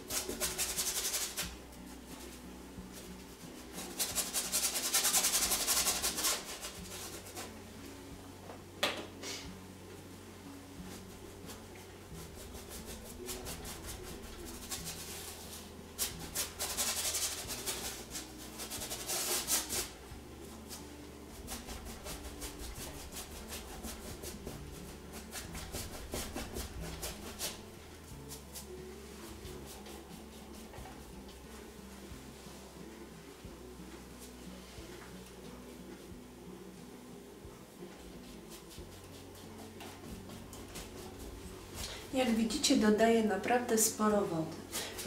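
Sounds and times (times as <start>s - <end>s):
paintbrush scrubbing on canvas: 0.0s - 1.6s, 2.2s - 7.6s, 10.8s - 31.1s, 37.9s - 42.4s.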